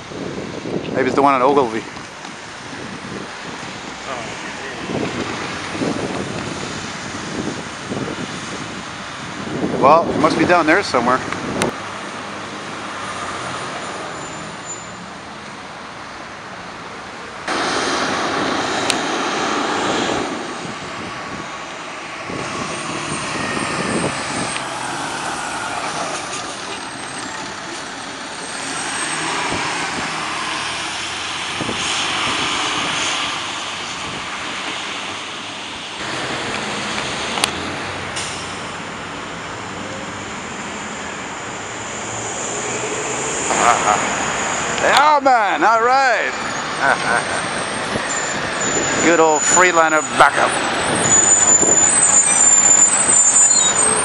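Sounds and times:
diesel engine: 0:00.0 - 0:54.0
vehicles driving on wet road: 0:00.0 - 0:54.0
tyre hiss: 0:17.5 - 0:20.4.

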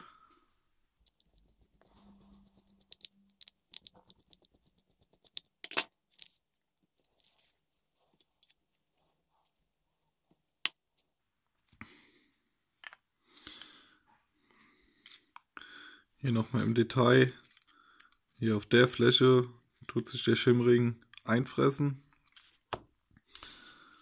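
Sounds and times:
metal parts clicking and clinking: 0:17.4 - 0:18.4.

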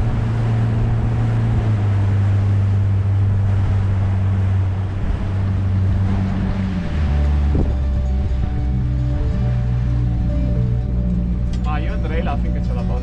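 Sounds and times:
wind on microphone: 0:00.0 - 0:12.8
motorboat engine running: 0:00.0 - 0:13.0
water rushing past hull: 0:00.0 - 0:13.0.

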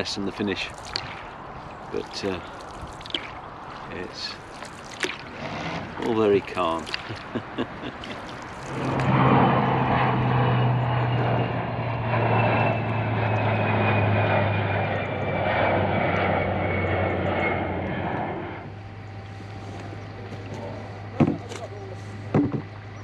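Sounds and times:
engine droning: 0:00.0 - 0:23.0
high whine falling in pitch: 0:07.4 - 0:23.0.

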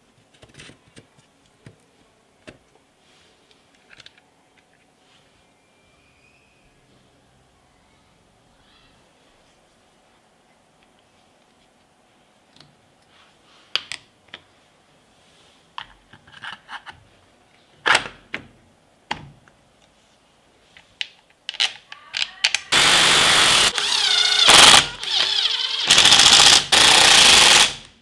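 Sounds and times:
plastic parts clicking into place: 0:03.8 - 0:04.7, 0:20.8 - 0:22.7
power tool motor whining: 0:22.7 - 0:28.0.

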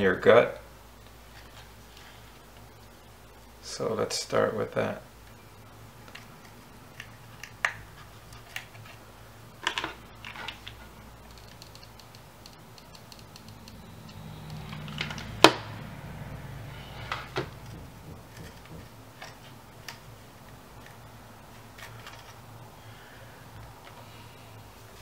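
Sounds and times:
faint low hum: 0:00.0 - 0:25.0
sharp click: 0:11.3 - 0:14.6.

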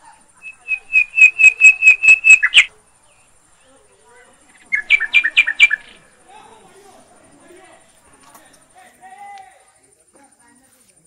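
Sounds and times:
bird whistled notes: 0:00.4 - 0:02.7, 0:04.6 - 0:06.0.

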